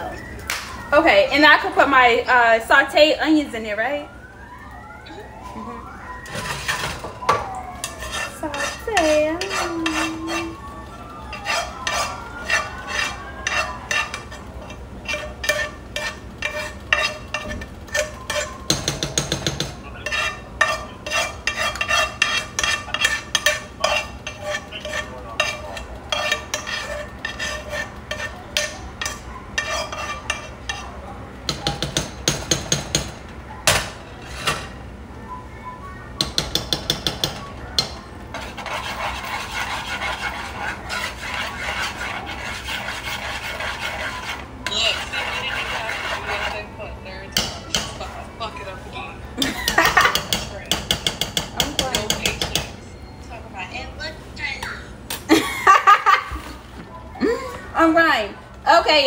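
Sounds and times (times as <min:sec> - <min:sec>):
spoon scraping and clinking on pans: 0:06.3 - 0:10.6, 0:11.3 - 0:34.8, 0:36.2 - 0:48.6, 0:49.4 - 0:53.0.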